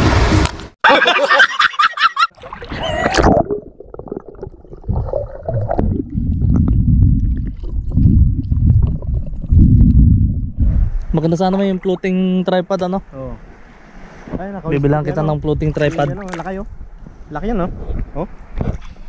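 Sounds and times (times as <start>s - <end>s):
man laughing loudly: 0.8s - 3.1s
muffled underwater water rumble: 2.4s - 12.5s.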